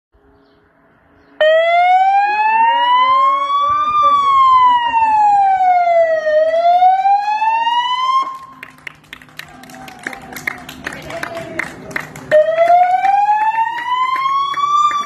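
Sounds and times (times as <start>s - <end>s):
police siren wailing: 1.4s - 8.7s, 12.3s - 15.0s.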